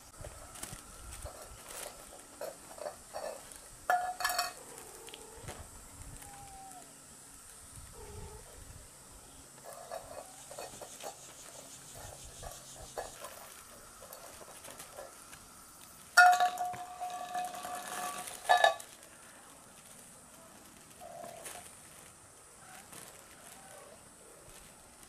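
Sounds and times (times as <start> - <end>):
fabric tunnel rustling: 17.0 - 25.0.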